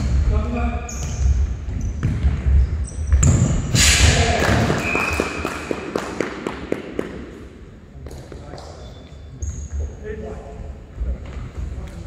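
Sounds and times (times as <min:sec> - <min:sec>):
shoe squeaks: 0:00.8 - 0:04.0, 0:04.8 - 0:05.5, 0:08.6 - 0:10.1.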